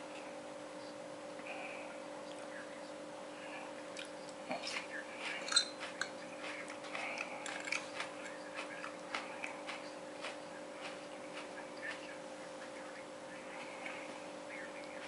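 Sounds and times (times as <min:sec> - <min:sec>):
fork scraping a plate: 0:05.3 - 0:06.6
fork clinking on plate: 0:05.4 - 0:06.2.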